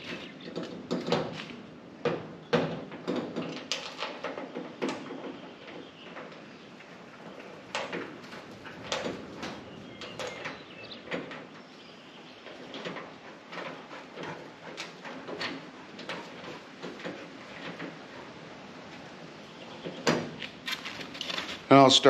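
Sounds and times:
metallic clicks and knocks: 0.0 - 11.6, 12.4 - 18.4.

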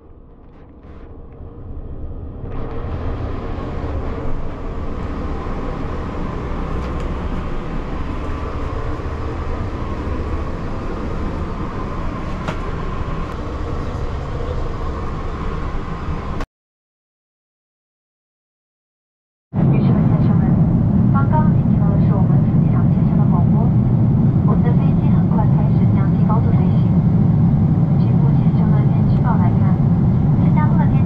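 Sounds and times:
vehicle running rumble: 2.4 - 16.4.

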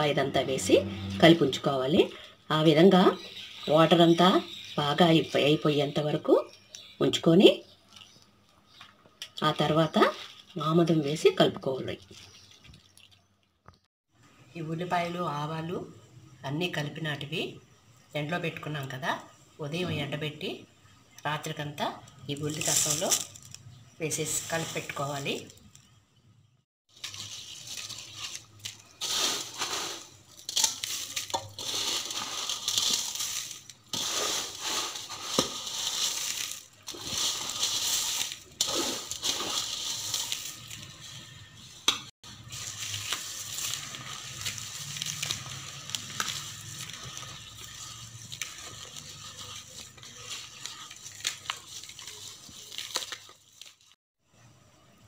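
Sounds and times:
wet crackly mixing in a bowl: 1.9 - 7.0, 7.7 - 13.7, 26.9 - 54.0.

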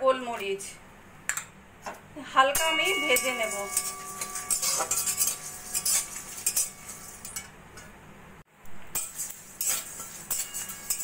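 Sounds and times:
metal spatula scraping a wok: 2.6 - 7.9, 9.0 - 11.0.

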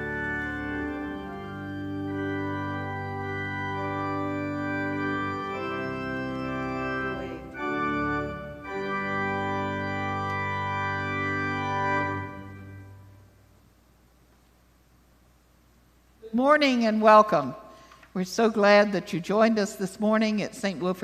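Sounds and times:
organ playing slow chords: 0.0 - 13.6.

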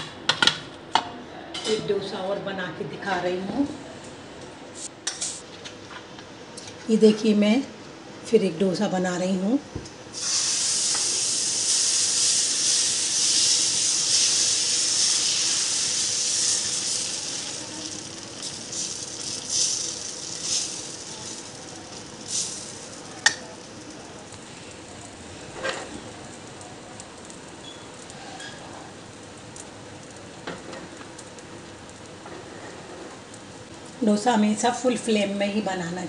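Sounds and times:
batter sizzling on hot griddle: 10.1 - 35.1.

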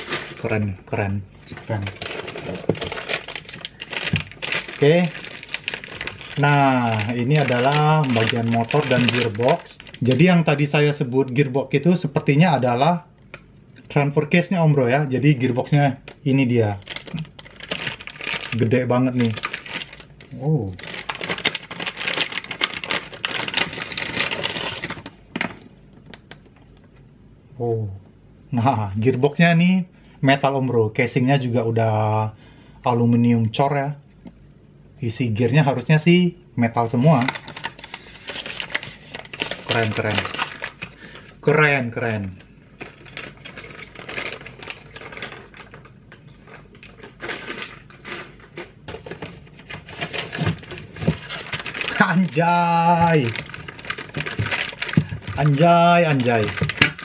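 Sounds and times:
plastic bag crinkling: 0.0 - 0.8, 1.4 - 11.5, 15.2 - 26.4, 37.0 - 57.0
plastic packaging rustling: 0.0 - 11.6, 15.0 - 26.8, 37.0 - 57.0.

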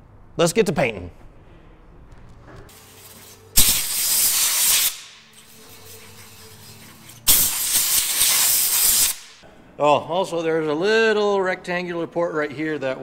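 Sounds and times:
paint spray can hissing: 2.7 - 9.4.

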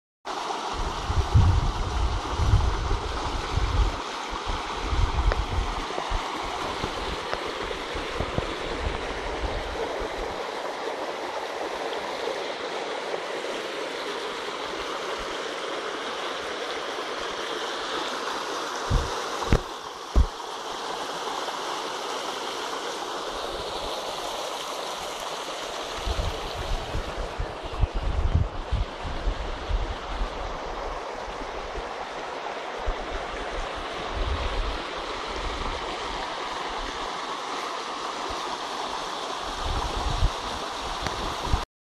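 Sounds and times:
stream running over rock: 0.3 - 41.6
wind rumble on microphone: 0.7 - 10.3, 18.9 - 20.3, 26.0 - 31.8, 32.8 - 35.8, 39.5 - 41.6
brief thumps: 18.9 - 20.3.

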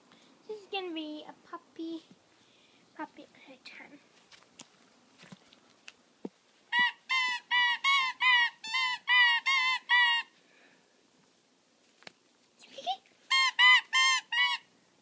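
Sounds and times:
dog toy squeaking: 6.7 - 10.3, 13.3 - 14.7.

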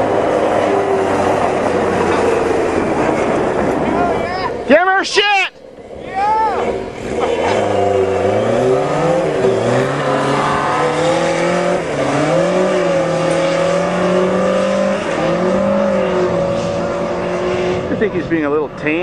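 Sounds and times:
motorcycle engine revving hard: 5.8 - 18.2.

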